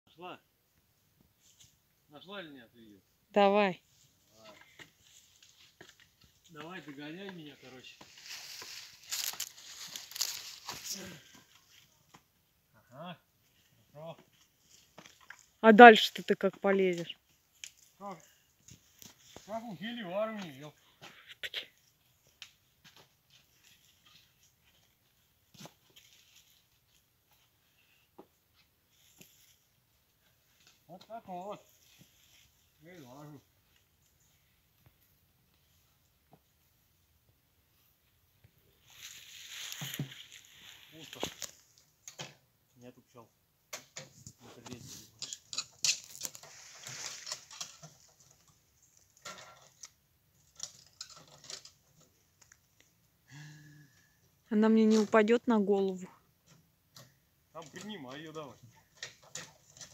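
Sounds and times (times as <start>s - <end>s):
faint rustling: 3.8s - 12.1s, 37.7s - 42.0s, 44.2s - 53.0s
rustling: 3.8s - 12.3s, 13.4s - 37.1s, 37.7s - 42.2s, 44.0s - 53.0s.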